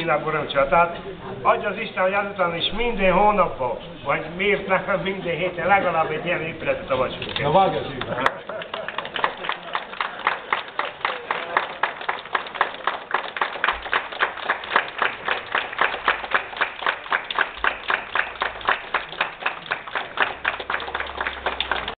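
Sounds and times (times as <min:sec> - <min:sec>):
crowd clapping in rhythm: 0:07.3 - 0:22.0.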